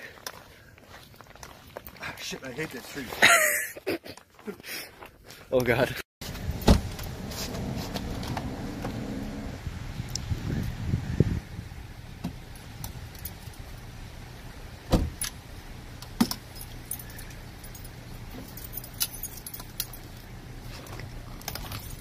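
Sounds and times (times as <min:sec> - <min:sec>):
car door shutting: 0:06.4 - 0:09.5, 0:14.9 - 0:15.3
metal crutches clinking: 0:16.3 - 0:20.2.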